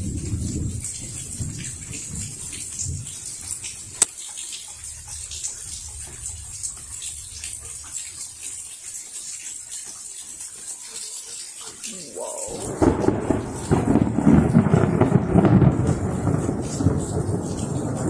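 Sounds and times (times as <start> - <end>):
rain splashing: 0.0 - 18.0
water drips: 0.0 - 18.0
thunder rumble: 12.1 - 18.0.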